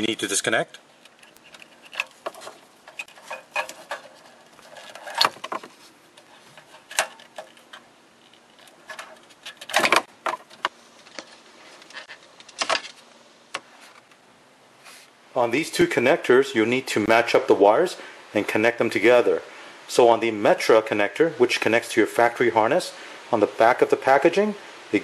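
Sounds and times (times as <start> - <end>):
wiring connectors clicking and rattling: 1.0 - 14.2.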